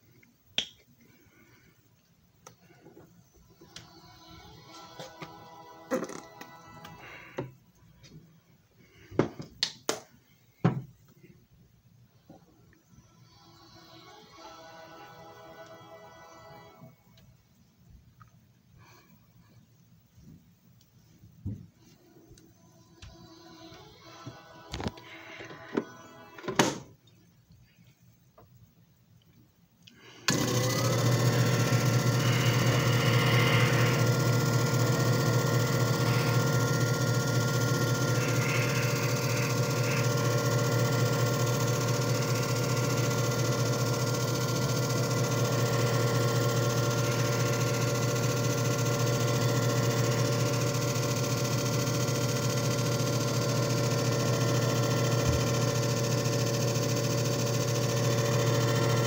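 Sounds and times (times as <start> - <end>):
motor hum with constant whine: 29.9 - 59.0.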